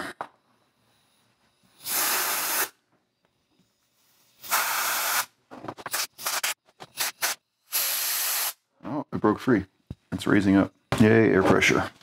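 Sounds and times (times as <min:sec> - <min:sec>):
compressed air blasts: 0:01.8 - 0:02.8, 0:04.4 - 0:08.6.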